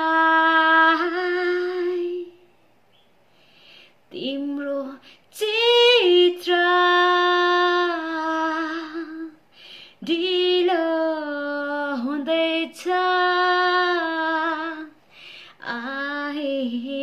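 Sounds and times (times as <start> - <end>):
woman singing unaccompanied: 0.0 - 2.5, 4.1 - 9.4, 10.0 - 15.0, 15.6 - 17.0.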